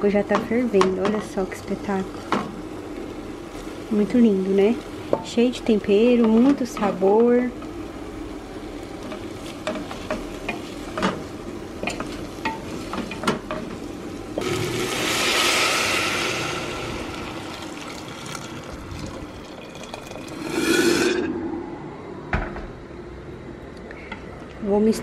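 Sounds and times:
water poured into hot pan hissing: 0:14.4 - 0:21.3.

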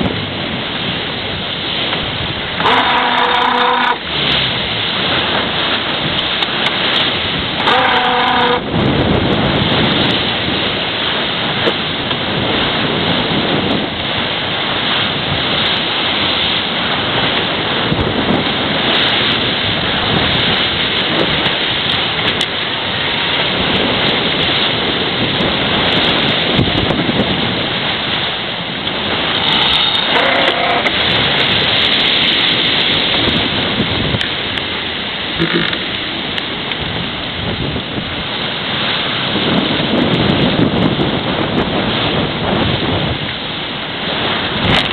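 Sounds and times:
water rushing past hull: 0:00.0 - 0:44.9
wind buffeting microphone: 0:00.0 - 0:44.9
brief pitched sound: 0:35.4 - 0:35.8.

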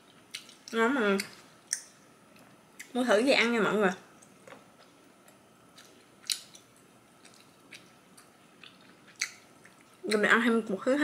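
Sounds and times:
faint chewing: 0:04.2 - 0:10.2
sharp mouth clicks and smacks: 0:08.7 - 0:09.9.

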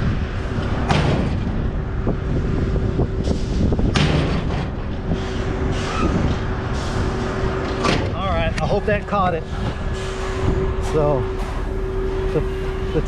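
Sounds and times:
diesel engine whining: 0:00.0 - 0:13.0
sharp knocks: 0:00.8 - 0:01.6, 0:03.9 - 0:05.0, 0:07.6 - 0:08.2.

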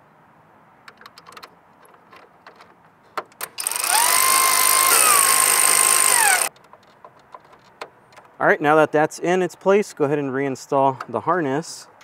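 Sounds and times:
cordless power tool motor whine: 0:03.6 - 0:06.5.

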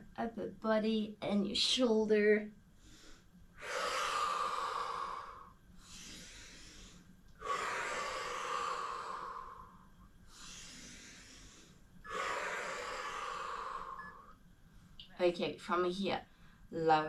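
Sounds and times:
woman breathing heavily: 0:02.7 - 0:14.5.

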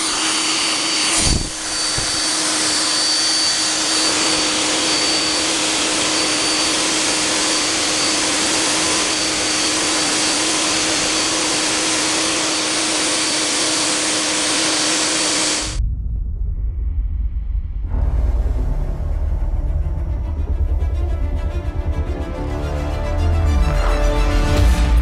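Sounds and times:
fog generator blower hiss: 0:00.0 - 0:15.8
low rumble: 0:15.8 - 0:24.0.

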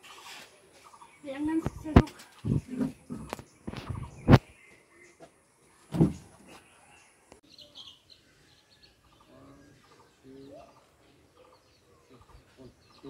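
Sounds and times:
bird chirps and calls: 0:00.0 - 0:05.3, 0:05.9 - 0:13.0
short bump: 0:05.9 - 0:06.4.

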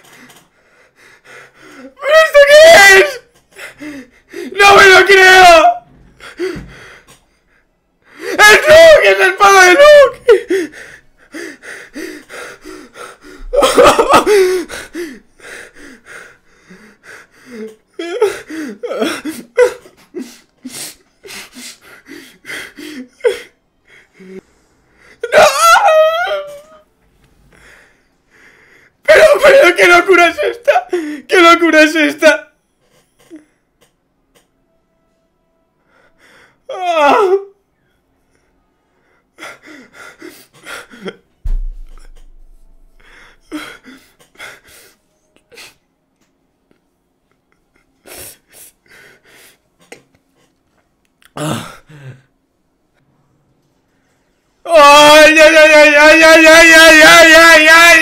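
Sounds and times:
young man sobbing: 0:00.0 - 0:24.4, 0:25.0 - 0:26.9, 0:28.9 - 0:33.8, 0:35.9 - 0:37.7, 0:38.3 - 0:45.8, 0:46.7 - 0:50.6, 0:51.2 - 0:52.4, 0:54.6 - 0:58.0
low thump: 0:41.5 - 0:42.8.

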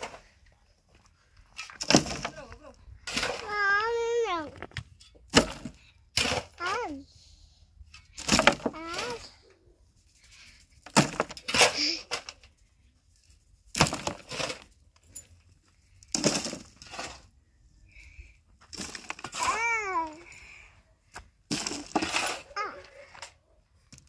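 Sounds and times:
rubble crashing into metal wheelbarrow: 0:01.5 - 0:06.8, 0:08.0 - 0:09.4, 0:10.8 - 0:12.5, 0:13.7 - 0:15.1, 0:16.0 - 0:17.3, 0:18.7 - 0:20.4, 0:21.4 - 0:23.3.

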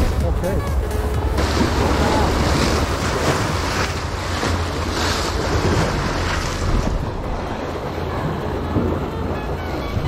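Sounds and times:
small waves breaking on rocks: 0:01.4 - 0:07.0.

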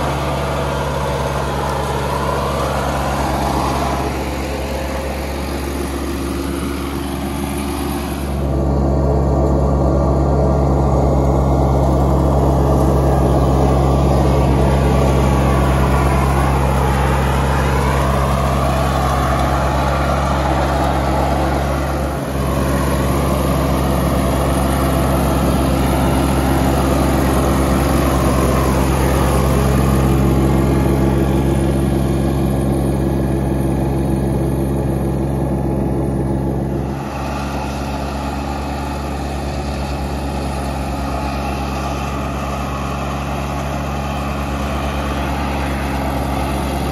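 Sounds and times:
mower diesel engine running: 0:00.0 - 0:46.9.

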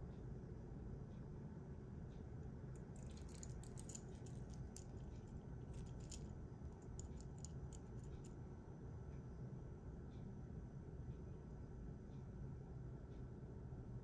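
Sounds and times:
low background hiss: 0:02.2 - 0:14.0
watch bracelet clinking: 0:02.8 - 0:08.4.

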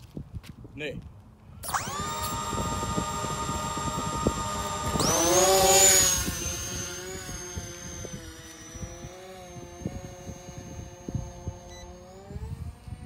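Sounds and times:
wind buffeting microphone: 0:00.0 - 0:13.0
electric propellers whining: 0:01.6 - 0:13.0.

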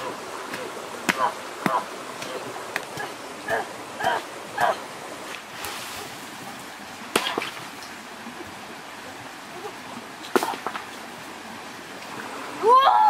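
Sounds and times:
stream water running: 0:00.0 - 0:13.0.

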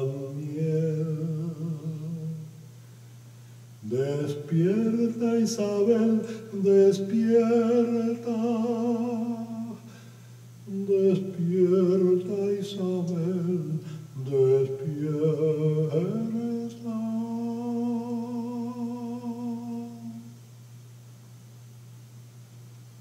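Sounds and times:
man humming a melody: 0:00.0 - 0:02.6, 0:10.6 - 0:20.4.

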